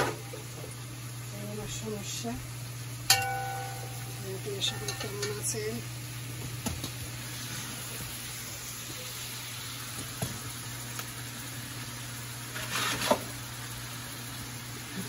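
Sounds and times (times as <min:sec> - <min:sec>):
vegetables sizzling in a pan: 0:00.0 - 0:15.0
low steady hum: 0:00.4 - 0:07.6.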